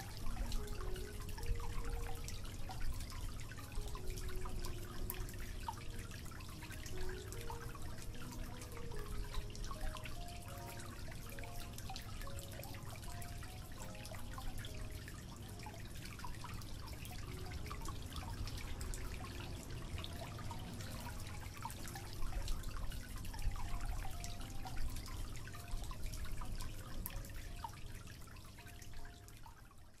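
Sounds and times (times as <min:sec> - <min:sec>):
fountain water trickling and dripping: 0:00.0 - 0:30.0.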